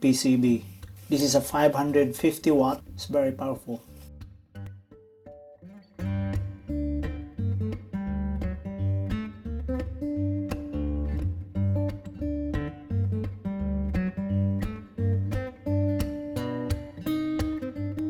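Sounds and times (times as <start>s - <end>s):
acoustic guitar strumming: 0.0s - 18.0s.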